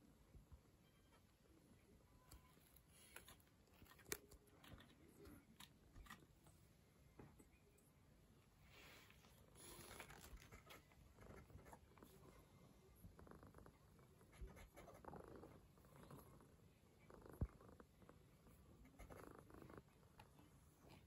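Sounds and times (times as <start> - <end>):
cat purring: 8.6 - 21.0.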